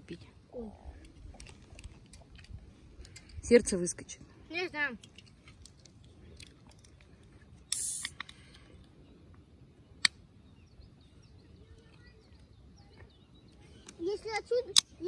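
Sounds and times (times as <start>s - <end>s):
loud hissing rustle: 7.7s - 8.6s
faint bird chirps: 8.5s - 14.7s.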